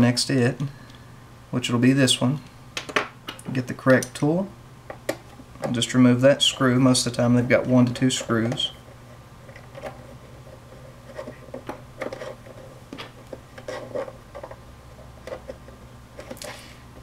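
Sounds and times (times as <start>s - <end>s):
screwdriver scratching: 7.8s - 14.6s.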